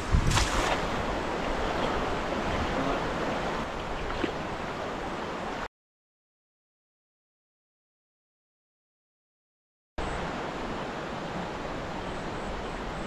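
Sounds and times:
wind on microphone: 0:00.0 - 0:05.2
river water rushing: 0:00.0 - 0:05.7, 0:10.0 - 0:13.0.

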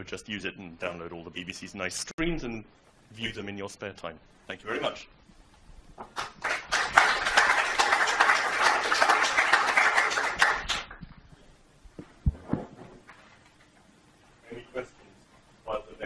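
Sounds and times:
audience applauding: 0:06.0 - 0:11.0.

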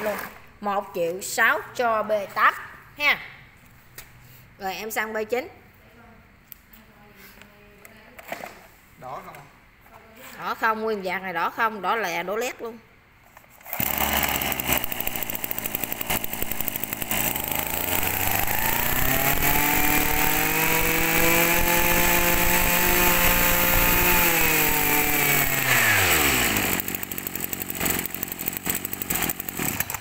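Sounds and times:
brush-cutter engine idling and revving: 0:00.0 - 0:00.5, 0:13.7 - 0:30.0.

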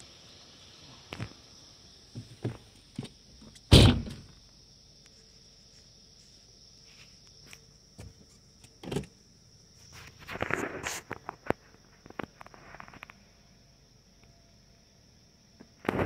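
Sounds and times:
insects trilling: 0:00.0 - 0:16.0
thump: 0:03.7 - 0:04.3.

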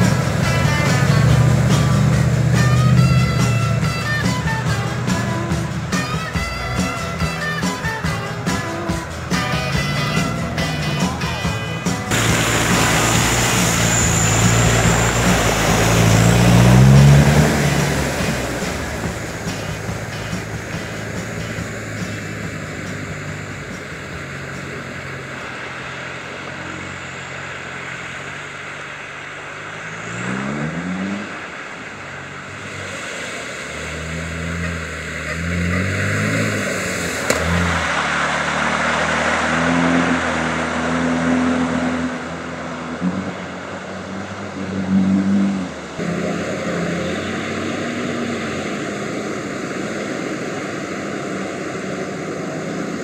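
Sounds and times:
off-road engines revving: 0:00.0 - 0:53.0
water and mud splashing: 0:00.0 - 0:53.0.

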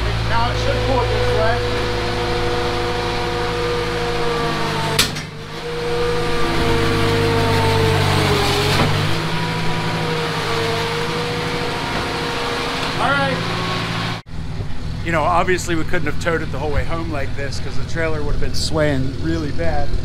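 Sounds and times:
skid loader engine under load: 0:00.0 - 0:15.0.

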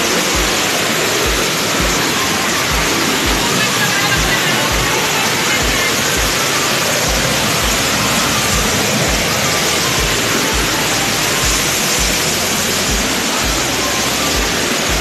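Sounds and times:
low drum beat music: 0:00.0 - 0:15.0
waterfall rushing: 0:00.0 - 0:15.0.

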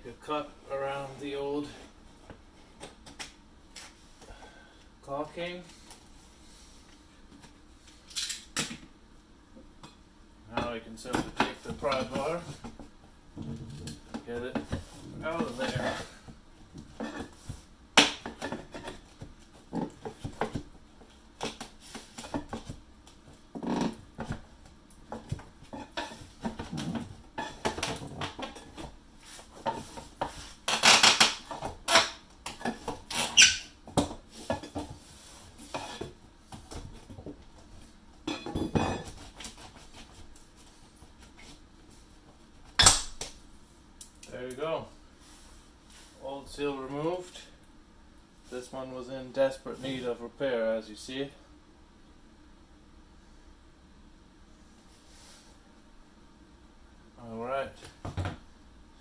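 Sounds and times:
wood creaking and squeaking: 0:30.7 - 0:32.2.

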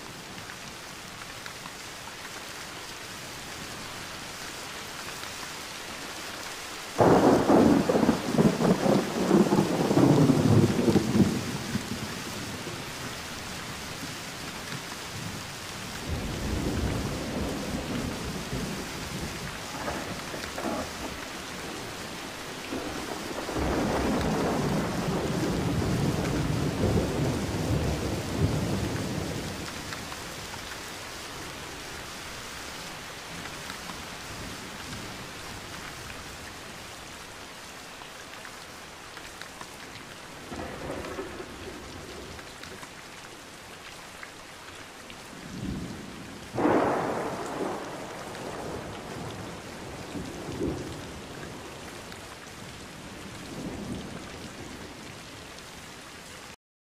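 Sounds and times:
steady rain falling: 0:00.0 - 0:56.6
sharp thunderclap: 0:46.6 - 0:49.6
rolling thunder: 0:46.6 - 0:51.7.

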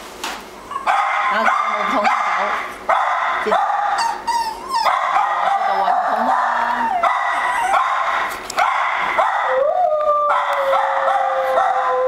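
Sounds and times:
small dog whining and yipping: 0:04.0 - 0:04.9, 0:06.8 - 0:07.8.

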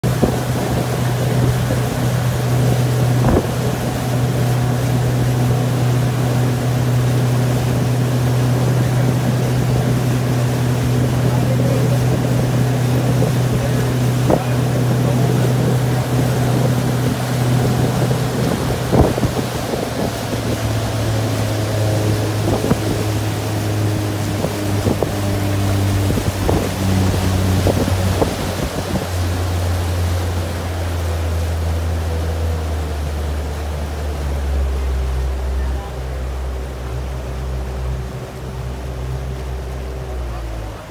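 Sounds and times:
wind buffeting microphone: 0:00.0 - 0:31.2
outboard motor droning: 0:00.0 - 0:40.9
water rushing along hull: 0:00.0 - 0:40.9.

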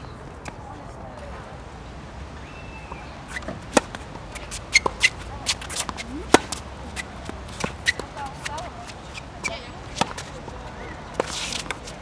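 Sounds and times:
tennis balls bouncing on hard court: 0:02.9 - 0:10.3
tennis balls struck by racquets: 0:03.3 - 0:10.4.

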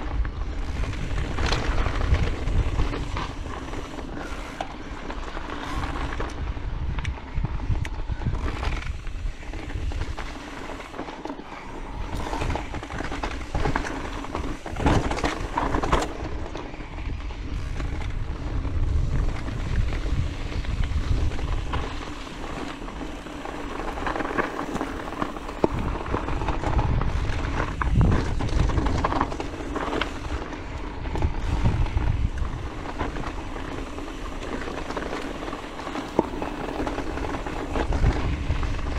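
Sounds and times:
bike rattling and clicking: 0:00.0 - 0:38.9
wind rumble on microphone: 0:00.0 - 0:38.9
tyres crunching over stones: 0:19.0 - 0:38.9.

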